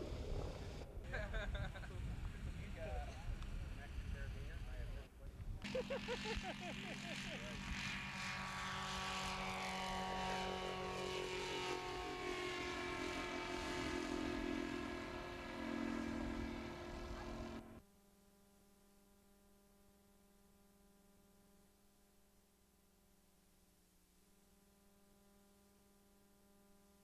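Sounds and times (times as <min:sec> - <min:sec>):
ultralight aircraft droning past: 0:00.0 - 0:17.8
faint steady hum: 0:00.0 - 0:27.0.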